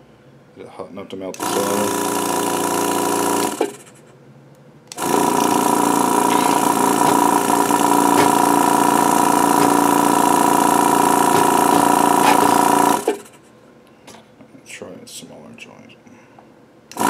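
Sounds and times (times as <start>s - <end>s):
vacuum pump humming: 1.3s - 3.8s, 4.9s - 13.3s.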